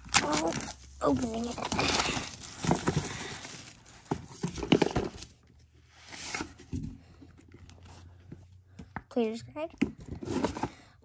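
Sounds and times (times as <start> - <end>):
plastic shrink wrap crinkling: 0.0 - 5.4.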